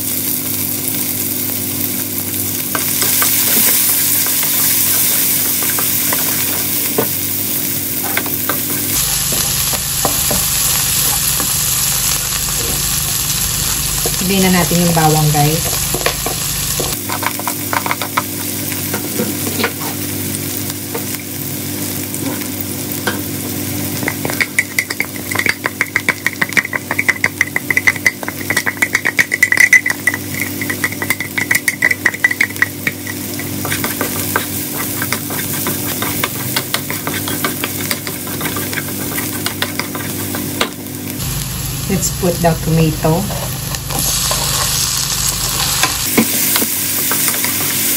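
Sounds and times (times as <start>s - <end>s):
onion sizzling in hot oil: 0.0s - 47.9s
quick scraping strokes in pan: 33.6s - 40.5s.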